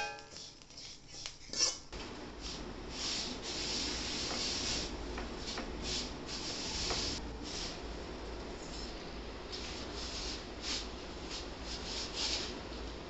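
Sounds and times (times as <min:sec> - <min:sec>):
steel ladle scraping a pan: 0:00.0 - 0:01.9.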